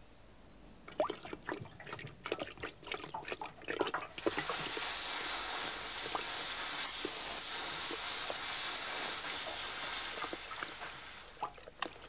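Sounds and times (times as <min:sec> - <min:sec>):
liquid trickling and dripping: 0:00.9 - 0:04.4, 0:10.2 - 0:12.0
welding torch hissing: 0:04.2 - 0:11.5
faint crackles: 0:04.2 - 0:12.0.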